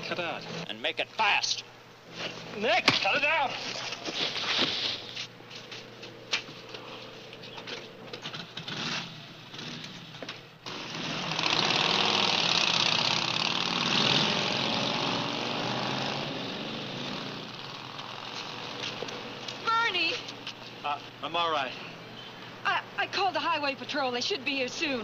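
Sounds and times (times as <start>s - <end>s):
scuffle with knocks and thuds: 2.1s - 6.7s
motorcycle engines running: 5.6s - 21.2s.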